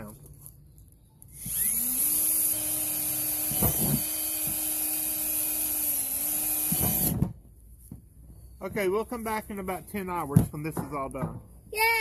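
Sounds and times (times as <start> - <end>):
cordless drill boring plastic: 1.2 - 7.2
drill bit knocking: 1.4 - 7.2.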